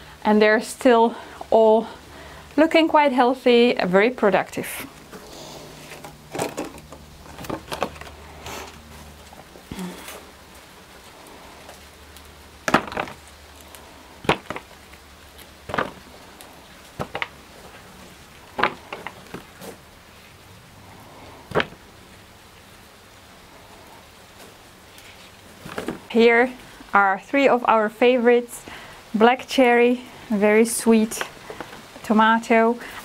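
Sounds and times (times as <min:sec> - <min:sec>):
light rain on greenhouse: 0:00.0 - 0:33.0
tomatoes dropped into plastic punnet: 0:12.6 - 0:17.8.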